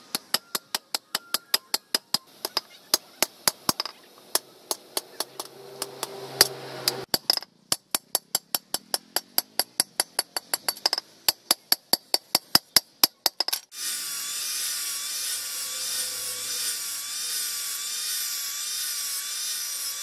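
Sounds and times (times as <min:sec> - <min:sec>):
hammer striking steel blade: 0:00.0 - 0:07.1.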